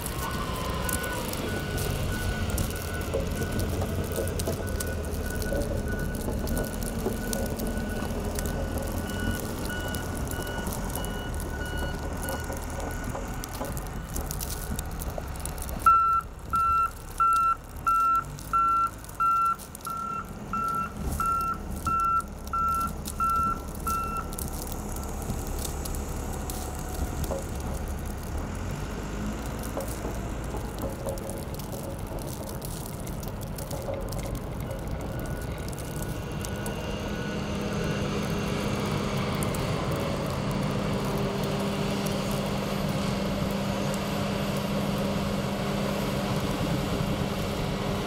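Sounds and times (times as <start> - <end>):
diesel engine running: 0.0 - 48.0
backup alarm beeping: 0.9 - 13.1, 15.9 - 24.3.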